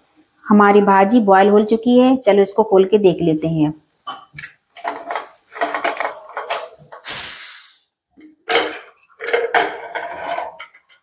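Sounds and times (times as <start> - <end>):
metal pot and lid clattering: 4.1 - 7.0, 8.4 - 11.0
short loud hiss: 7.0 - 8.0.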